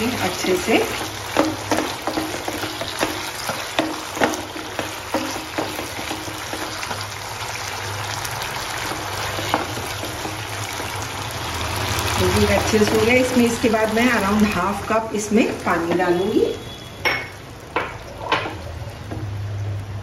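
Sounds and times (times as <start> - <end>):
spatula scraping and knocking pan: 0.0 - 7.2, 8.8 - 11.2
sauce bubbling in wok: 0.0 - 15.7.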